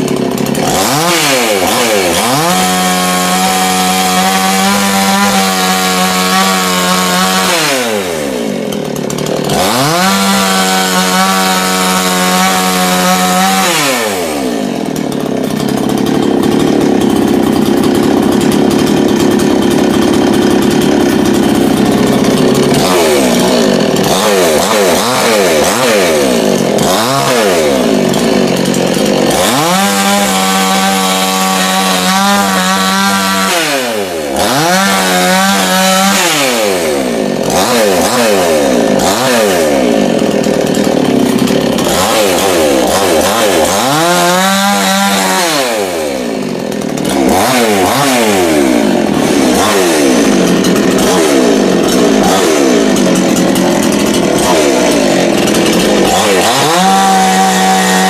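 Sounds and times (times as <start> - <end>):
chainsaw engine revving: 0.0 - 58.0.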